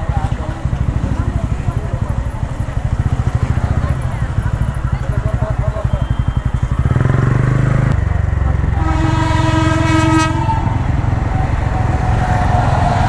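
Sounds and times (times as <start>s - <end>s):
low engine rumble: 0.0s - 13.0s
train horn blast: 8.7s - 13.0s.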